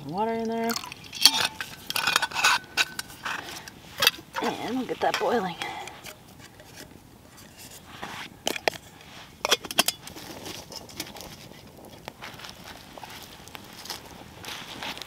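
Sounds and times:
campfire crackling: 0.0 - 15.0
metal pot clinks: 0.4 - 4.5, 9.4 - 10.1.

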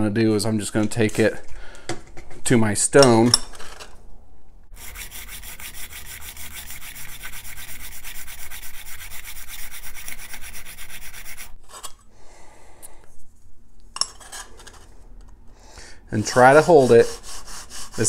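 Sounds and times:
steel scraper rasping on stone: 4.8 - 11.6, 16.2 - 18.0.

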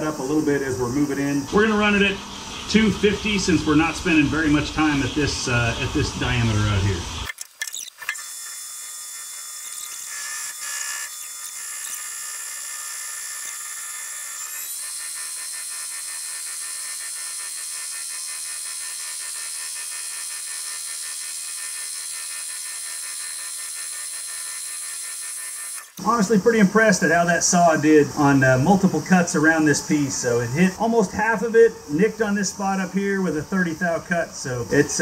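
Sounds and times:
cutting noise: 0.0 - 26.5
metal lathe whining: 7.3 - 26.2.

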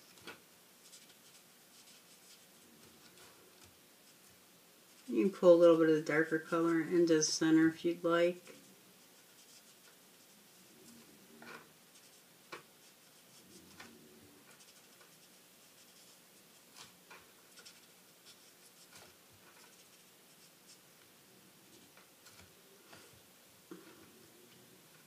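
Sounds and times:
marker scratching on card: 0.8 - 3.2, 9.0 - 10.4, 11.9 - 20.8.

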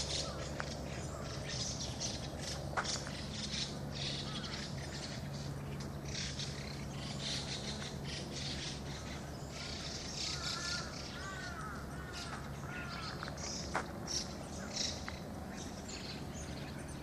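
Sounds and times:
birds chirping: 0.0 - 17.0
low steady hum: 0.0 - 17.0
crow cawing: 4.0 - 4.7, 9.6 - 13.6.

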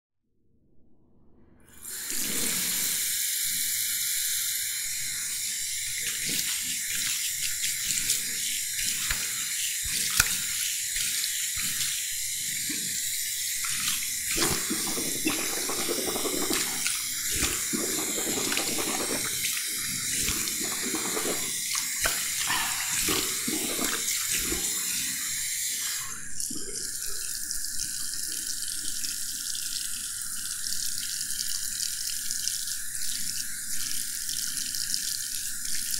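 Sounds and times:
tap running into basin: 13.6 - 25.1.

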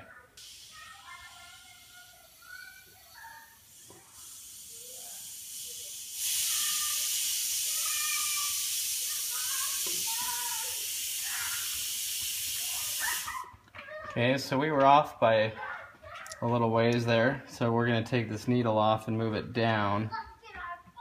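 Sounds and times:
compressed air hissing: 0.4 - 13.4.

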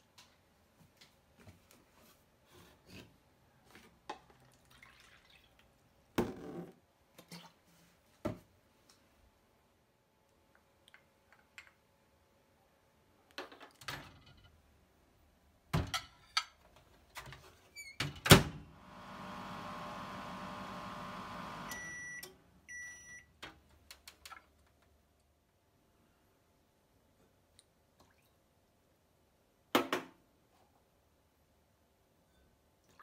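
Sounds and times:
microwave humming: 18.3 - 23.1
microwave beeps: 18.9 - 23.3.

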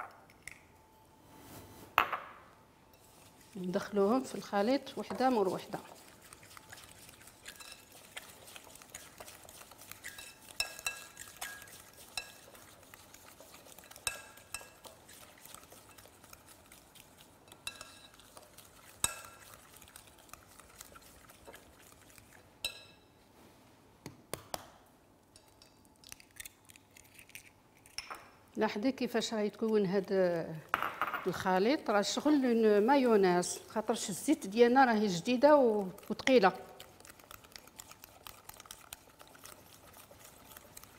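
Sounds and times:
whisk beating eggs in glass bowl: 3.0 - 22.9, 31.4 - 40.9.

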